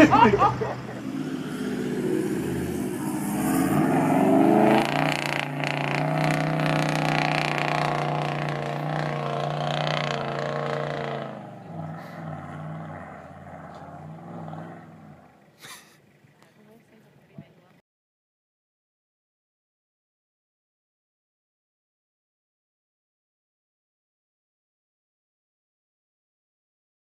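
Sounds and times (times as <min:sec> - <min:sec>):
diesel engine revving: 0:00.0 - 0:17.3.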